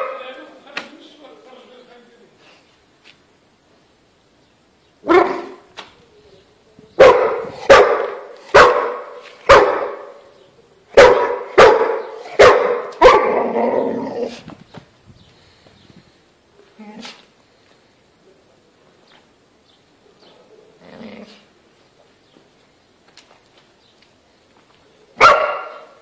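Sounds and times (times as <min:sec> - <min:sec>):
dog barking: 0:00.0 - 0:00.2, 0:05.0 - 0:05.6, 0:07.0 - 0:10.2, 0:10.9 - 0:13.6, 0:25.2 - 0:26.0.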